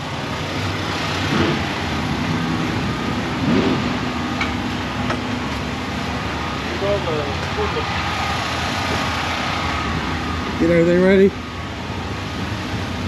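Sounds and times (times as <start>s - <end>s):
vehicle engines droning: 0.0s - 13.0s.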